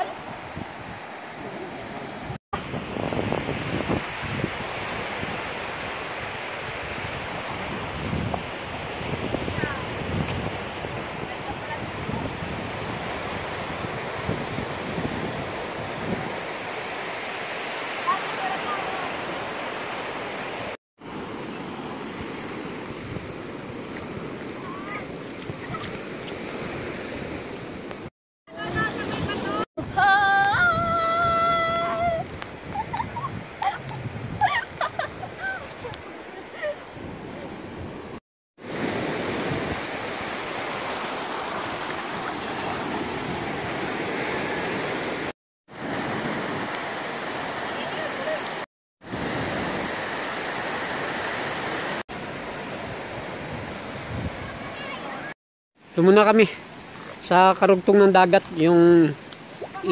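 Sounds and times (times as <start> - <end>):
wind on microphone: 0.0 - 16.5, 28.6 - 36.1, 52.8 - 55.3
waves washing onto beach: 0.0 - 59.9.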